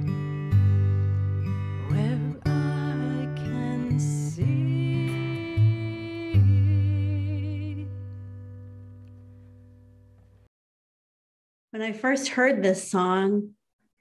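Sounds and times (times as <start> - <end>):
strummed acoustic guitar: 0.0 - 9.8
woman singing: 1.8 - 8.0.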